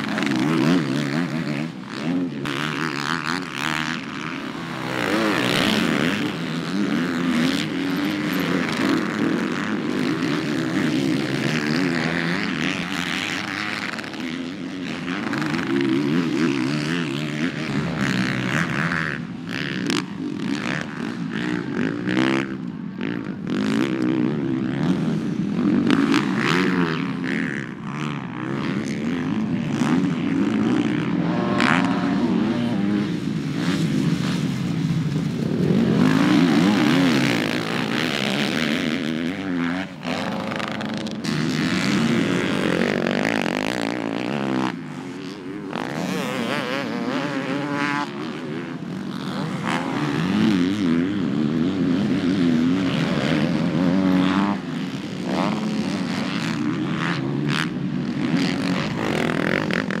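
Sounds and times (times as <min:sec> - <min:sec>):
dirt bike engines revving: 0:00.0 - 1:00.0.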